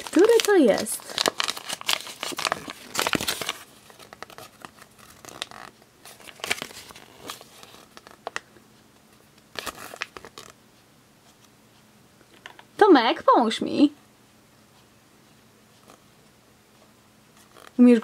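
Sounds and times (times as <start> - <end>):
paper leaflet crinkling: 0.0 - 8.5, 9.4 - 10.6
plastic wrapper crinkling: 0.0 - 8.5, 9.5 - 10.6.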